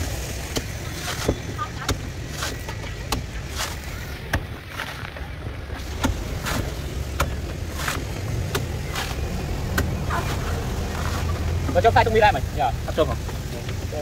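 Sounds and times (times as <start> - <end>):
cleaver chopping coconut: 0.3 - 4.9, 5.8 - 11.3.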